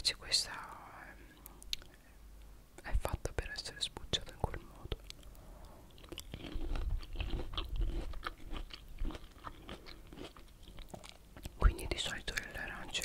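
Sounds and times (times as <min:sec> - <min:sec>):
chewing juicy fruit: 0:04.3 - 0:13.0.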